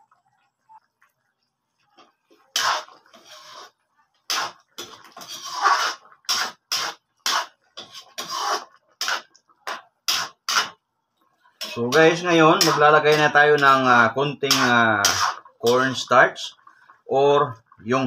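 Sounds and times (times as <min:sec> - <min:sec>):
metal ladle scraping a pan: 0:02.5 - 0:10.8, 0:11.5 - 0:16.2.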